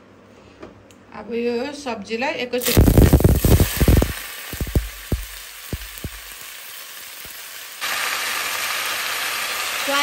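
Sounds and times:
food sizzling in hot oil: 0:02.6 - 0:10.0.

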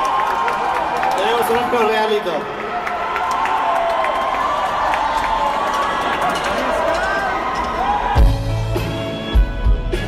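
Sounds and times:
scattered clapping: 0:00.0 - 0:01.8
audience cheering and shouting: 0:00.0 - 0:10.0.

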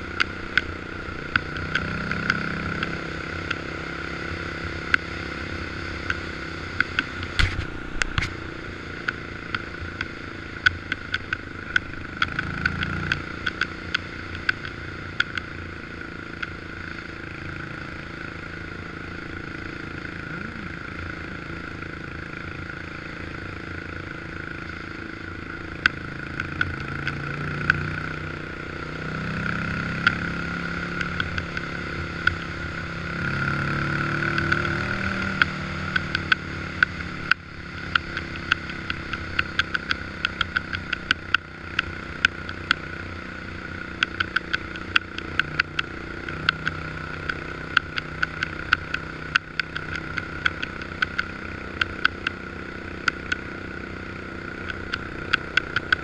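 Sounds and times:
atv engine running: 0:00.0 - 0:56.0
sharp clicks and rattles: 0:09.0 - 0:15.5, 0:34.0 - 0:43.0, 0:43.6 - 0:56.0.

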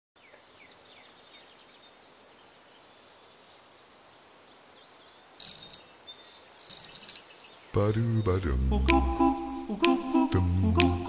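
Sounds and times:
small birds chirping: 0:00.2 - 0:11.0
steady high hiss: 0:00.2 - 0:11.0.

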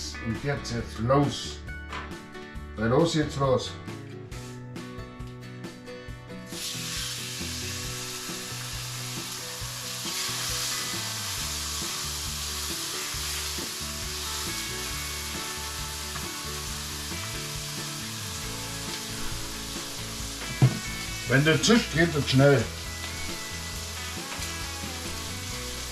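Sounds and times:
food sizzling in frying pan: 0:06.5 - 0:25.9.

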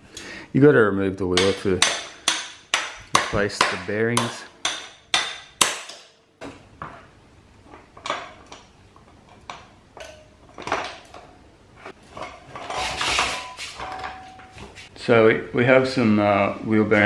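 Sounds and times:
metal clinks and knocks: 0:07.7 - 0:14.8.

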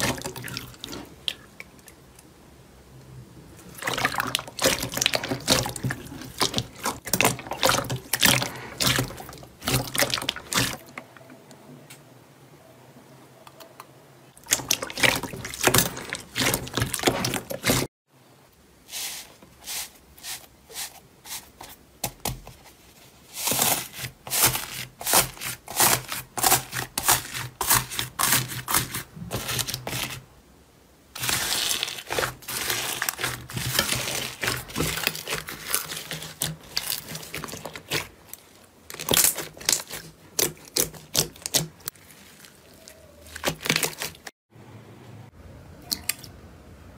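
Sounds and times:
hands squishing slime: 0:03.7 - 0:10.9, 0:31.2 - 0:44.3
foam beads crackling: 0:31.2 - 0:38.1.

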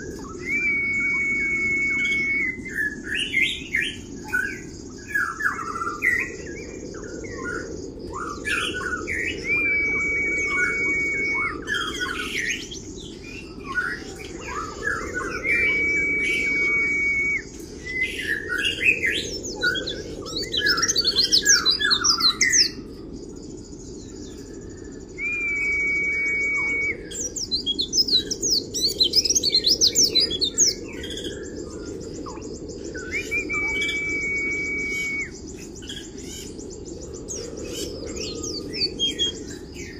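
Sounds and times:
bird whistled notes: 0:00.2 - 0:04.0, 0:09.2 - 0:22.8, 0:24.4 - 0:31.3, 0:32.3 - 0:35.5.

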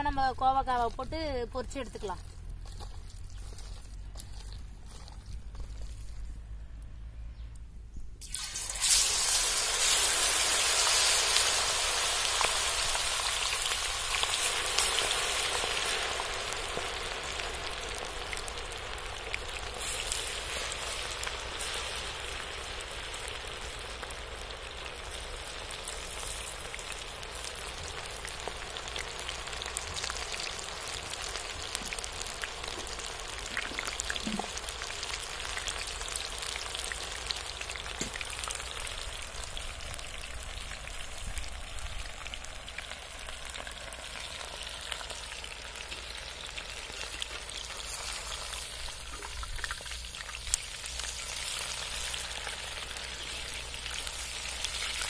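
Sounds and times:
deep-frying sizzle in oil: 0:08.2 - 0:55.0.

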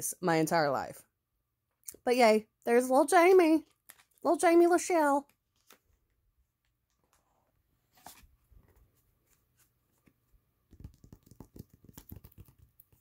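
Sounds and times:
photo prints rustling: 0:05.4 - 0:10.3.

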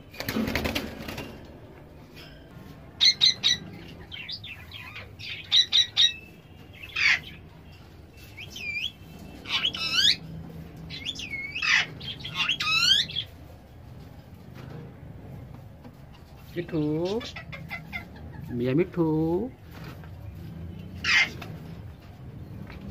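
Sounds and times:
parakeets squawking: 0:03.0 - 0:07.5, 0:08.3 - 0:13.4, 0:16.3 - 0:19.5, 0:20.4 - 0:22.0.

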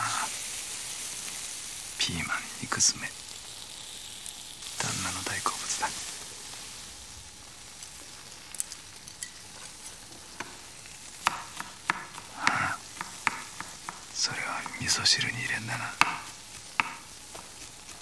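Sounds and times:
food sizzling in a pan: 0:00.0 - 0:18.0
knife tapping on cutting board: 0:11.2 - 0:14.8, 0:16.0 - 0:17.1.

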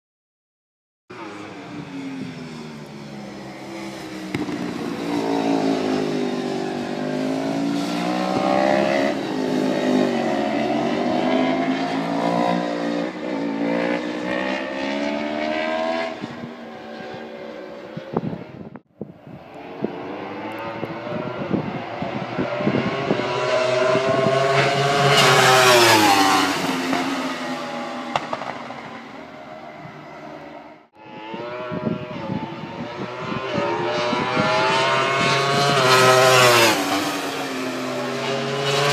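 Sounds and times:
motorcycle passing by: 0:01.1 - 0:18.7, 0:19.3 - 0:38.9
motorcycle engines racing: 0:01.1 - 0:38.9.

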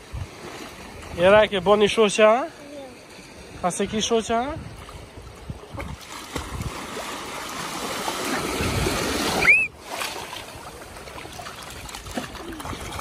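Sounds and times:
small waves washing in: 0:00.0 - 0:13.0
child squealing: 0:09.4 - 0:09.7.

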